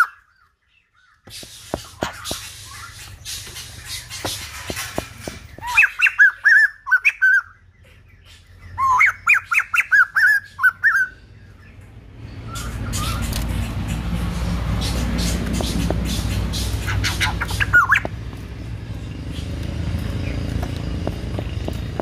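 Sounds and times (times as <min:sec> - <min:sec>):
bird calling whistled notes: 0:05.5 - 0:07.7, 0:08.4 - 0:11.2, 0:12.4 - 0:13.5, 0:15.1 - 0:18.1.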